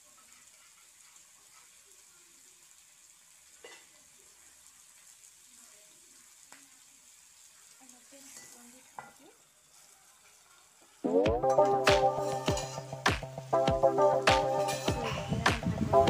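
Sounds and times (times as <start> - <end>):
meat sizzling in a pan: 0.0 - 16.0
steel plate lid clink: 11.6 - 13.0.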